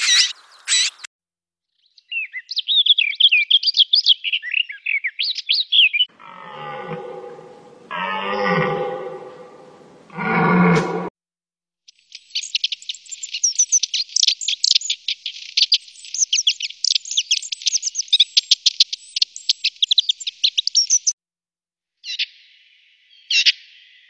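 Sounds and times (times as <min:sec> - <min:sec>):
songbird twittering: 0:01.9 - 0:06.1, 0:12.0 - 0:21.1.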